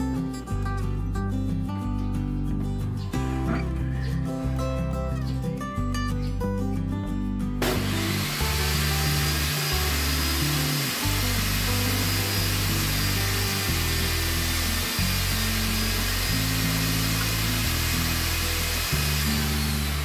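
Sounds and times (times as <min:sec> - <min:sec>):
table saw ripping wood: 0:07.6 - 0:20.0.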